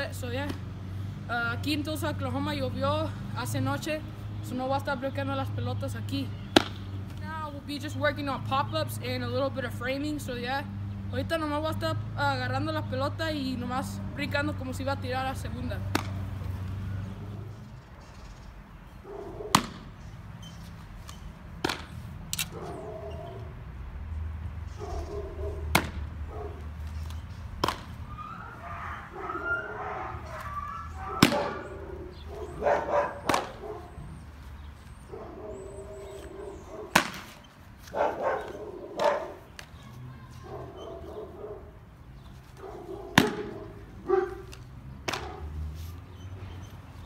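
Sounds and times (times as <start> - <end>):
baseball smacking into mitt: 6.5 - 7.2, 15.8 - 16.3, 19.5 - 20.0, 21.6 - 22.4, 25.7 - 26.1, 27.0 - 28.0, 31.2 - 31.6, 33.2 - 33.6, 36.9 - 37.5, 43.1 - 43.7, 44.5 - 45.4
dog barking: 19.0 - 19.6, 22.5 - 23.4, 24.8 - 25.7, 26.3 - 26.6, 28.5 - 34.0, 35.1 - 37.0, 37.9 - 39.4, 40.4 - 41.7, 42.6 - 44.5.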